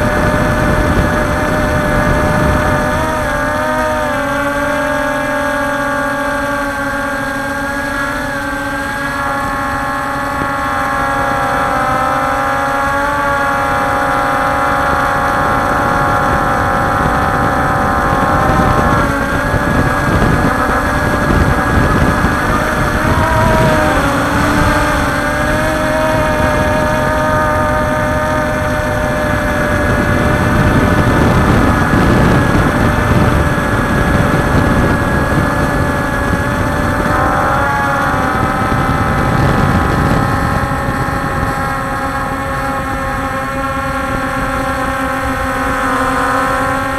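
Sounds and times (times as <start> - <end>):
drone propellers whining: 0.0 - 46.9
wind rushing: 15.4 - 42.6.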